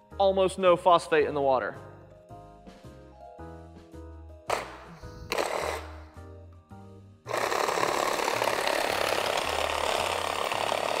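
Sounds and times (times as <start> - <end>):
reciprocating saw cutting metal: 5.2 - 6.2, 7.3 - 11.0.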